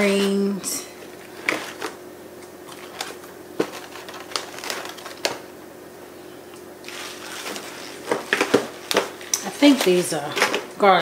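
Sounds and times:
faint steady hum: 0.0 - 11.0
packaging set down on counter: 2.9 - 5.4, 6.9 - 9.8.

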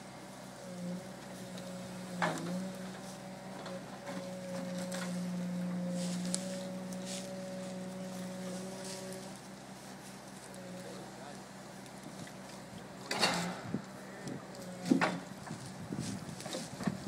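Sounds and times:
forwarder engine running: 0.0 - 17.0.

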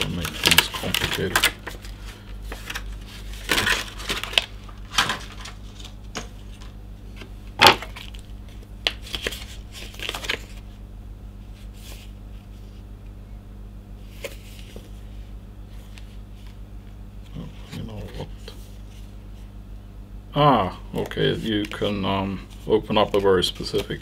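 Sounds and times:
plastic packaging crinkling: 0.0 - 6.7, 7.6 - 10.6.

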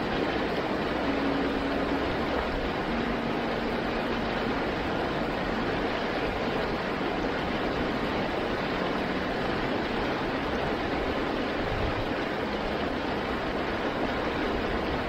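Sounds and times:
river rapids roaring: 0.0 - 15.0.

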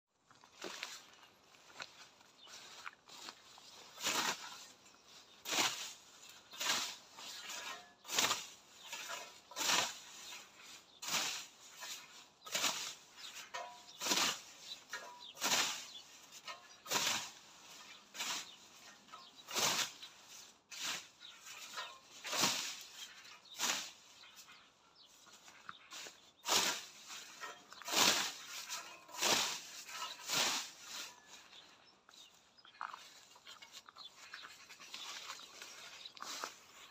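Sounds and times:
scythe swishing through nettles: 2.5 - 36.9.

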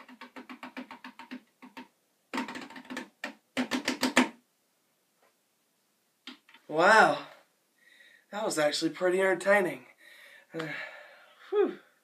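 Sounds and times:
hands drumming on hollow container: 0.0 - 4.4.

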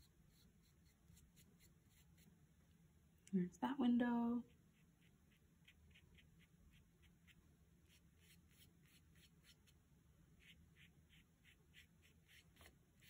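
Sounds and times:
paintbrush brushing on paper: 0.0 - 2.4, 4.5 - 9.8, 10.4 - 13.0.

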